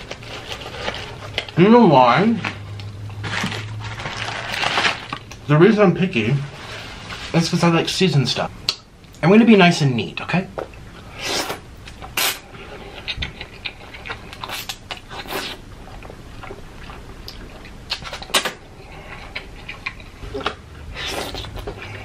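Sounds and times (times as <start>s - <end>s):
wet chewing and mouth clicks: 11.8s - 22.0s
person slurping noodles: 20.3s - 22.0s.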